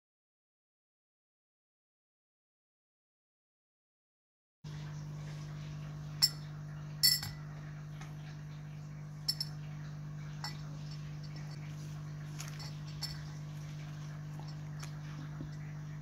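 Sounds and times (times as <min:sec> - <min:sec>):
low hum: 0:04.7 - 0:16.0
probe clinking against glass: 0:06.2 - 0:07.4, 0:09.2 - 0:09.6, 0:10.4 - 0:11.7, 0:12.4 - 0:13.4, 0:14.3 - 0:15.7.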